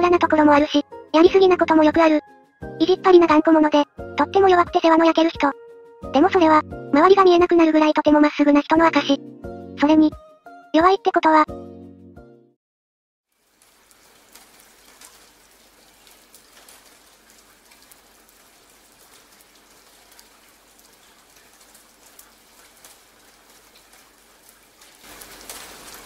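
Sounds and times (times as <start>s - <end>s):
rain falling: 13.3s - 26.0s.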